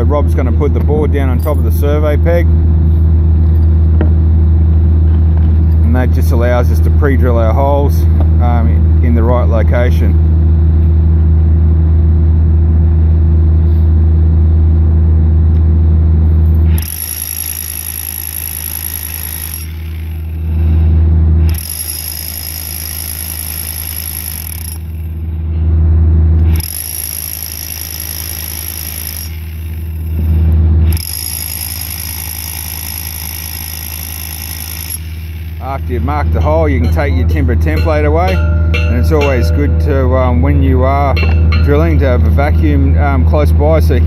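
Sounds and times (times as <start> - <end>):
loud low hum: 0.0 - 17.0, 19.6 - 21.6, 24.4 - 26.7, 35.0 - 44.0
rotary hammer drill: 16.7 - 20.7, 21.4 - 25.2, 26.4 - 36.0.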